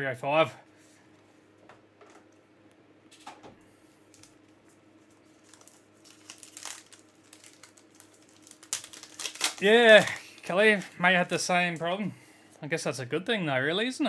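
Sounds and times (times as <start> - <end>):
foil pack crinkling: 4.0 - 12.0.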